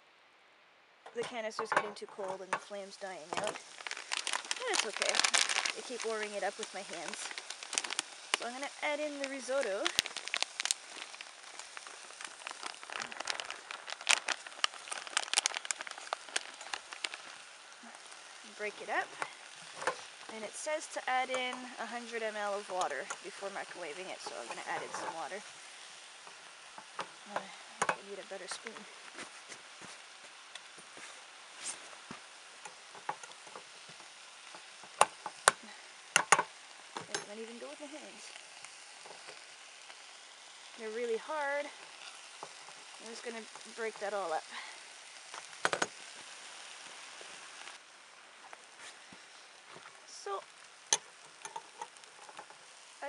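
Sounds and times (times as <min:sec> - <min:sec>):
rice frying in a pan: 0:01.1 - 0:53.0
plastic pouch crinkling: 0:03.2 - 0:20.4, 0:21.1 - 0:53.0
dry rice pouring into pot: 0:03.6 - 0:20.3
spoon scraping a pan: 0:21.3 - 0:25.4, 0:50.9 - 0:52.6.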